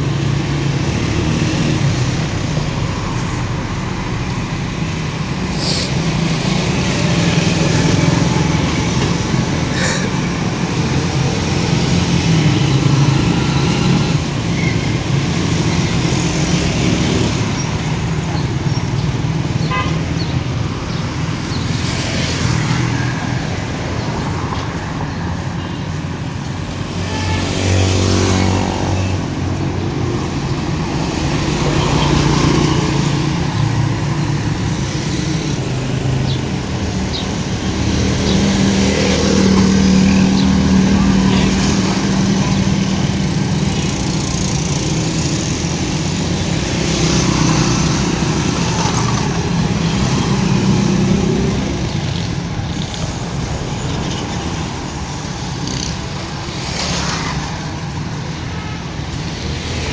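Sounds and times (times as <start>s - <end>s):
traffic engine hum: 0.0s - 59.9s
vehicles passing: 0.0s - 59.9s.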